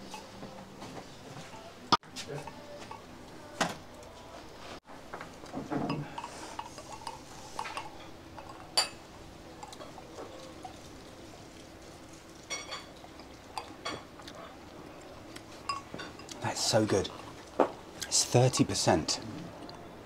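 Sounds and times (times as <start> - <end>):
wine glasses clinking: 5.8 - 10.8, 12.5 - 14.1, 15.6 - 17.2.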